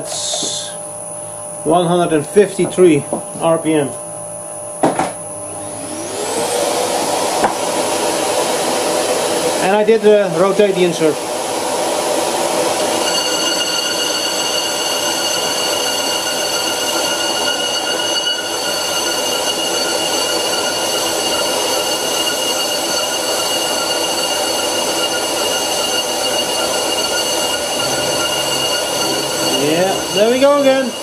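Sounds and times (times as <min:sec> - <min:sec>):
high-pitched ringing tone: 0:00.0 - 0:05.4, 0:12.6 - 0:31.0
lathe cutting metal: 0:05.6 - 0:31.0.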